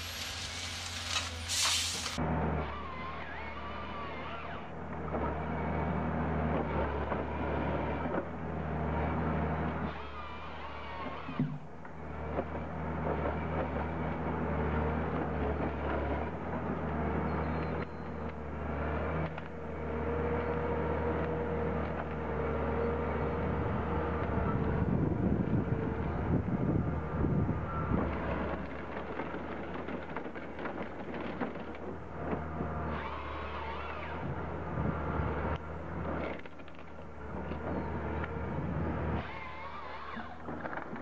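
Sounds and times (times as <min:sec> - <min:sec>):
machine engine running: 0:00.0 - 0:02.2.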